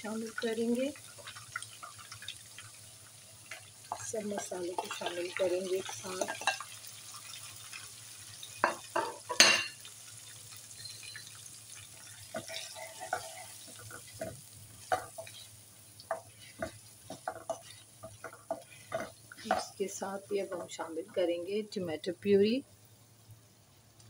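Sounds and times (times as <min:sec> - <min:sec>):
potatoes sizzling in oil: 0:00.0 - 0:24.0
spoon knocking against pan: 0:12.3 - 0:15.3
wooden spoon scraping a pan: 0:12.3 - 0:19.8.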